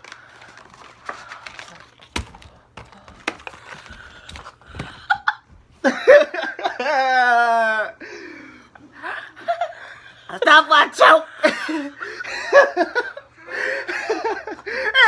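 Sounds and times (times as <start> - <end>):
person crying out: 6.8 - 8.0.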